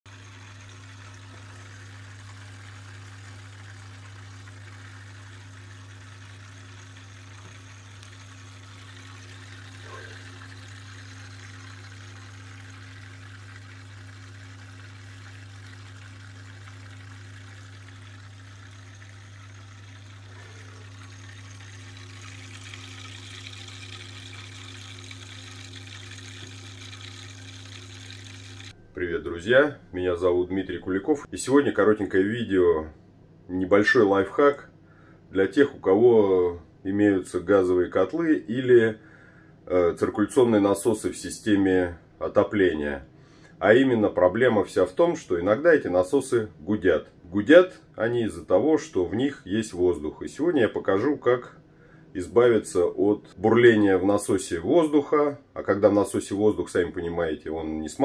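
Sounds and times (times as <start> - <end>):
circulation pump humming: 0.0 - 31.3.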